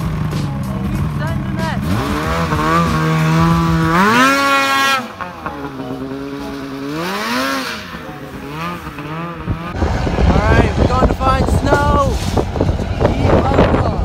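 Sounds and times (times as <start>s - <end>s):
snowmobile engine revving: 0.0s - 14.0s.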